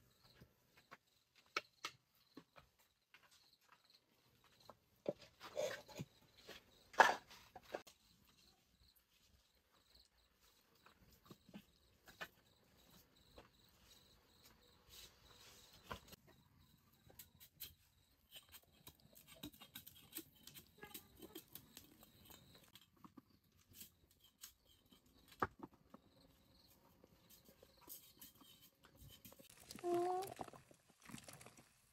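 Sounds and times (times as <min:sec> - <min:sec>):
firewood and cookware clattering: 0:04.4 - 0:08.0, 0:17.1 - 0:26.0, 0:26.8 - 0:31.9.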